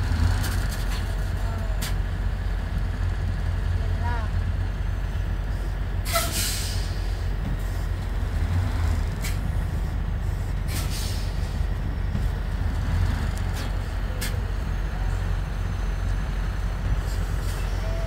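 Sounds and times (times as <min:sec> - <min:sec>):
diesel truck engine running: 0:00.0 - 0:18.0
air brakes hissing: 0:05.5 - 0:07.9, 0:09.2 - 0:11.7.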